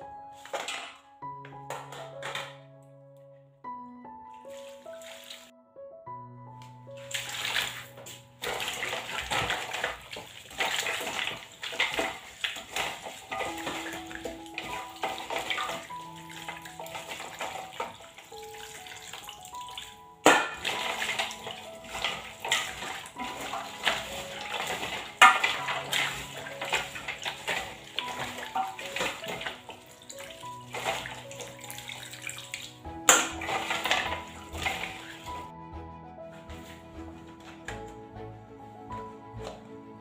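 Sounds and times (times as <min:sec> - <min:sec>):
background music: 0:00.0 - 0:40.0
hand squelching wet pulp in a bowl: 0:07.0 - 0:20.0, 0:20.6 - 0:32.8.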